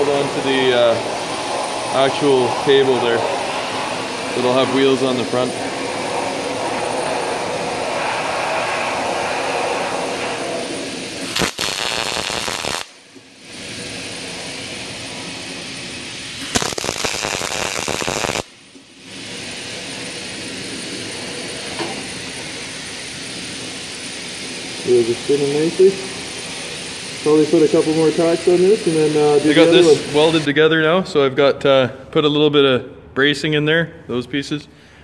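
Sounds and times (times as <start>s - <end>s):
steady background noise: 0.0s - 35.0s
welding arc crackling: 11.2s - 13.5s, 16.3s - 19.0s.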